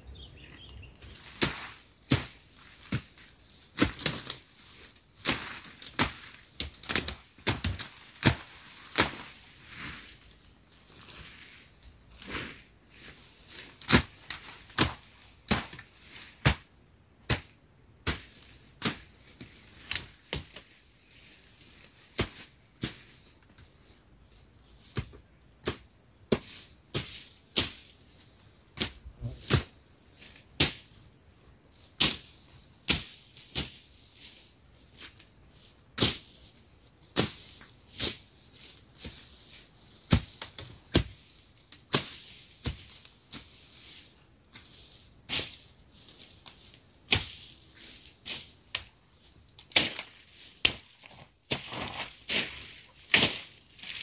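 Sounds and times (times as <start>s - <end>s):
high insect drone: 0.0s - 3.7s, 14.5s - 54.0s.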